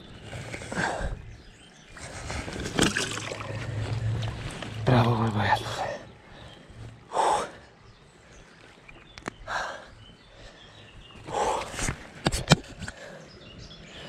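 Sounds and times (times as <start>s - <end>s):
short splashing rustles: 2.0s - 5.2s.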